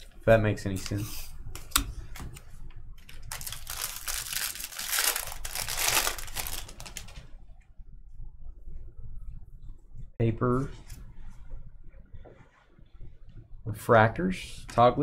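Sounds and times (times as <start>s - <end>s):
foil wrapper crinkling: 3.0s - 7.3s.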